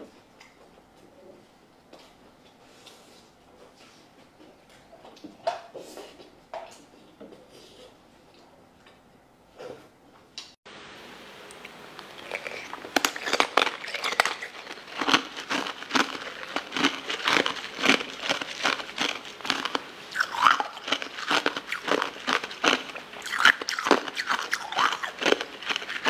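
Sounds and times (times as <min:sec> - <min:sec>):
person crunching ice: 0:12.2 - 0:26.0.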